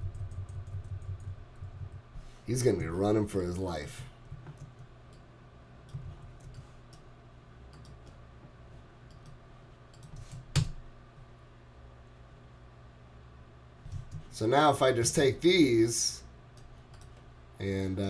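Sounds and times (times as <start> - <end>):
faint low hum: 0.0 - 18.0
computer mouse clicks: 4.2 - 7.1, 7.7 - 8.2, 9.0 - 10.8, 16.6 - 17.3.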